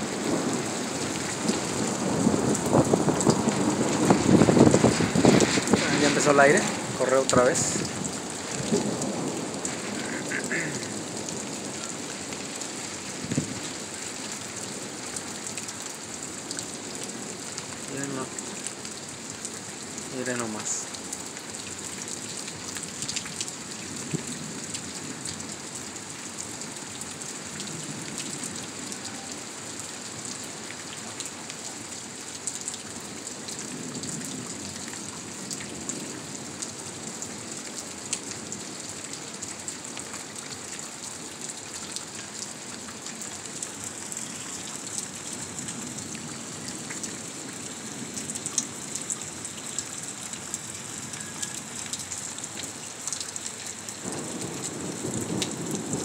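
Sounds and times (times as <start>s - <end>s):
rain falling steadily: 0.0s - 56.0s
raindrops ticking close by: 0.2s - 56.0s.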